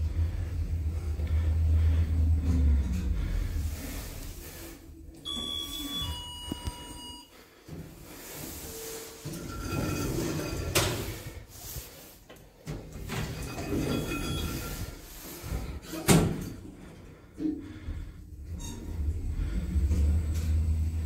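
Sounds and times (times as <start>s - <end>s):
sliding lift doors whining: 0.0s - 7.4s, 8.0s - 12.1s, 12.7s - 21.0s.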